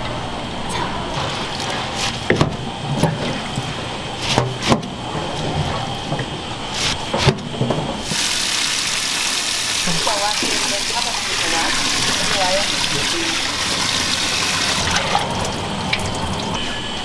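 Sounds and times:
tap water pouring into sink: 0:08.0 - 0:16.6.

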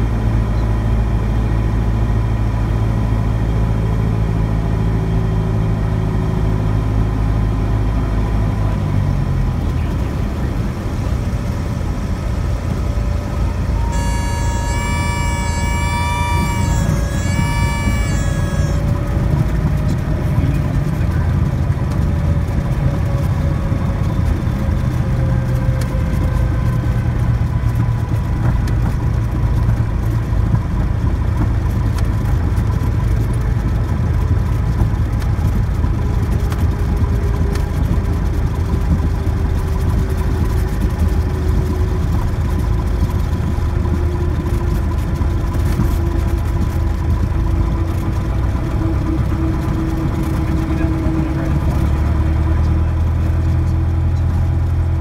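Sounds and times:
airplane engine and propeller droning: 0:00.0 - 0:55.0
faint falling whine: 0:12.6 - 0:20.6.

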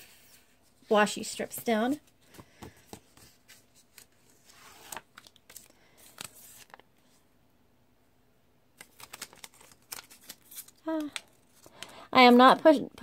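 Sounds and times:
paper sticker sheets crinkling: 0:02.8 - 0:06.8, 0:08.8 - 0:12.4.

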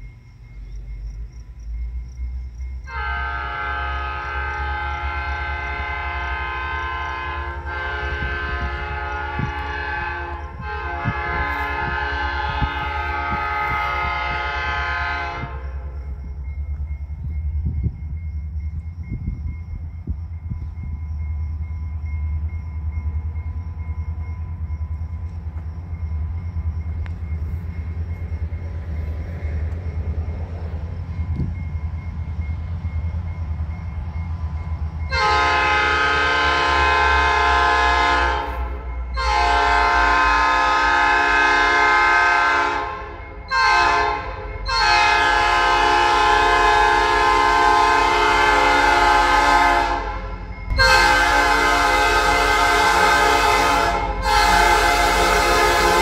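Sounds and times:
diesel locomotive rumble: 0:00.0 - 0:56.0
locomotive air horn blasts: 0:02.9 - 0:16.2, 0:35.1 - 0:56.0.

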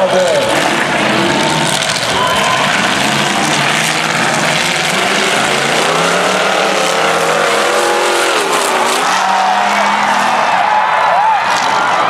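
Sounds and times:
car engines revving hard: 0:00.0 - 0:12.0.

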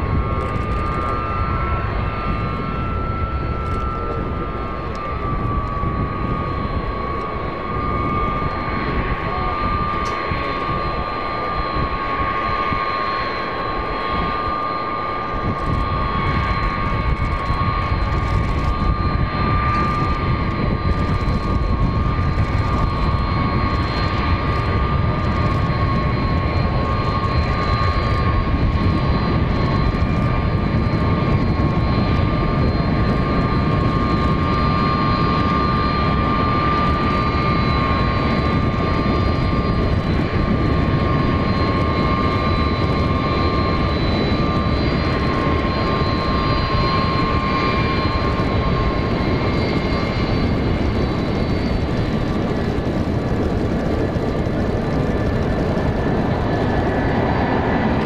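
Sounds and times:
jet engines whining at taxi power: 0:00.0 - 0:58.0.

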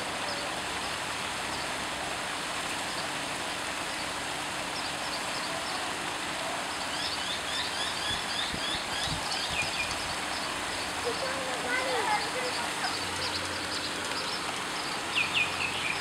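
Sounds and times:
water rushing from waterfall: 0:00.0 - 0:16.0
bird chirping: 0:06.7 - 0:16.0.

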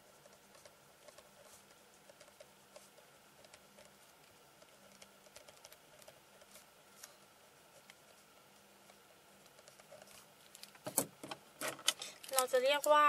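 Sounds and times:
ballpoint pen writing on paper: 0:00.0 - 0:06.7.

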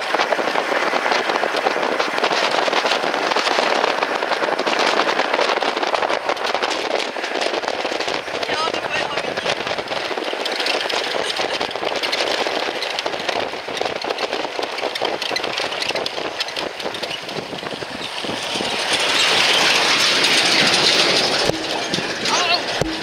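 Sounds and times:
vehicle rattling on dirt road: 0:00.0 - 0:23.0
lorry passing: 0:17.9 - 0:23.0.

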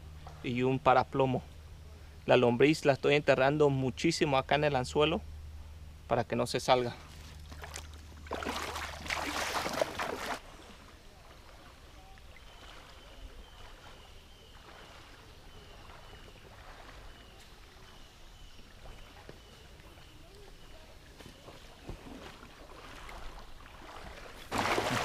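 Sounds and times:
flowing water: 0:07.0 - 0:25.0
loud rush of water: 0:24.5 - 0:25.0.

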